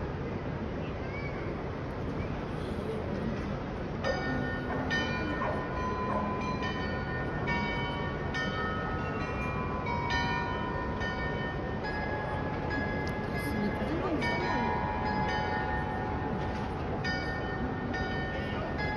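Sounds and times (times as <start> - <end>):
city background noise: 0.0 - 18.9
tower bells playing slow tune: 4.0 - 18.9.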